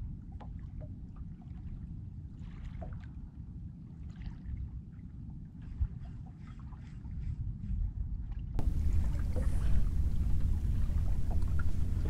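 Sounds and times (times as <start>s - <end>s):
water lapping against boat hull: 0.0s - 12.0s
low rumble: 8.3s - 12.0s.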